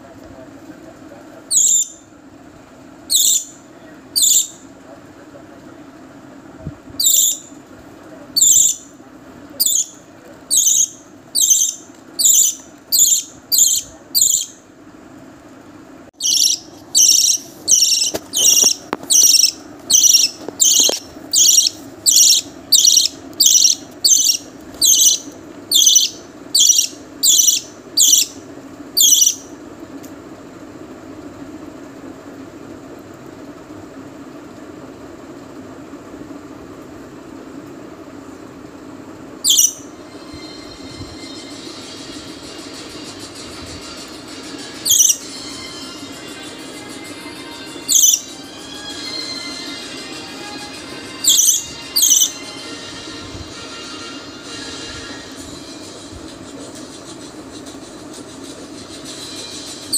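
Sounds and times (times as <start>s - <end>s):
bird chick begging calls: 16.2s - 28.3s.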